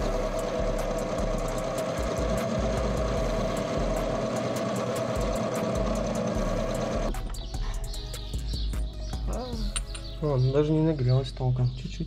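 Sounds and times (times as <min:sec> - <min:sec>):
metal lathe whining: 0:00.0 - 0:07.1.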